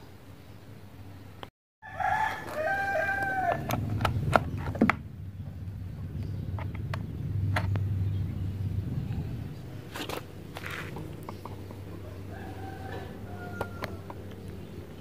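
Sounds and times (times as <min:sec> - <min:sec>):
rooster crowing: 0:01.8 - 0:03.9, 0:11.9 - 0:14.3.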